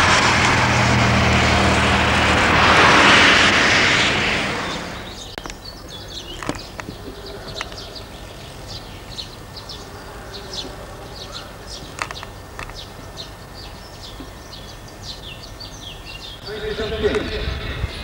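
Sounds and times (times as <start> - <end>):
small birds chirping: 4.6 - 18.0
sharp clicks: 5.3 - 7.9, 11.7 - 13.3.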